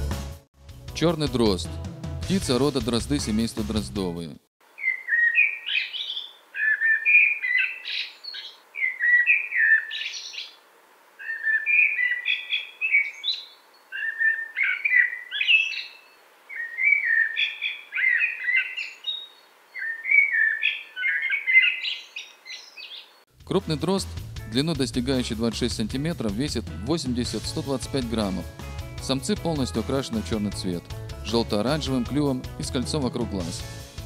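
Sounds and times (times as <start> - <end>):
blackbird singing: 4.7 - 10.6, 11.2 - 23.2.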